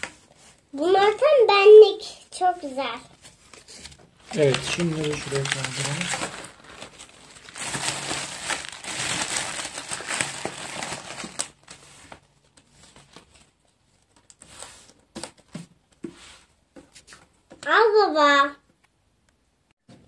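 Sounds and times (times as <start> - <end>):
paper and cardboard rustling: 2.3 - 17.6.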